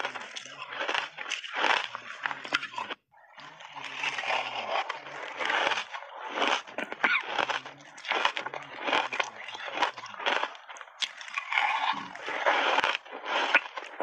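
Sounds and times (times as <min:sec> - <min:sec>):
crunching and chewing ice: 0:00.0 - 0:14.0.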